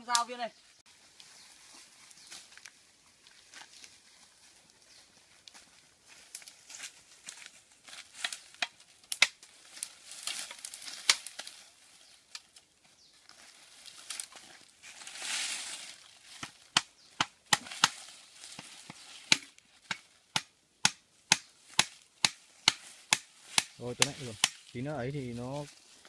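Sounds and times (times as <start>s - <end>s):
twigs and leaves rustling: 0.0s - 26.0s
machete chopping stick: 19.3s - 24.6s.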